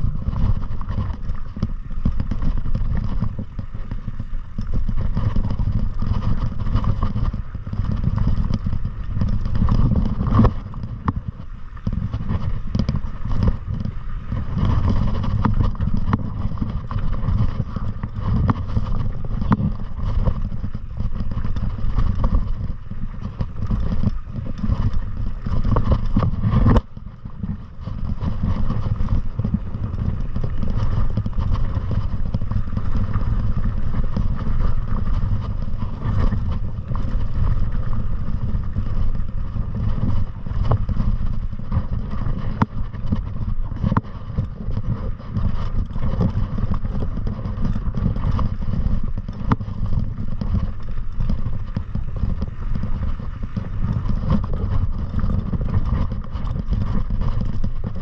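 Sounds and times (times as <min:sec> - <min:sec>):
clattering over rocks: 0:00.0 - 0:58.0
wind rumbling on microphone: 0:00.0 - 0:58.0.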